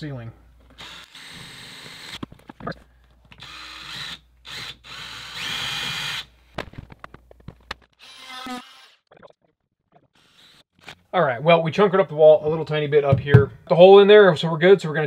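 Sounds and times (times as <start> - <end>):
power drill whining: 0.7 - 2.2, 3.4 - 6.3, 8.0 - 9.0, 10.2 - 11.0.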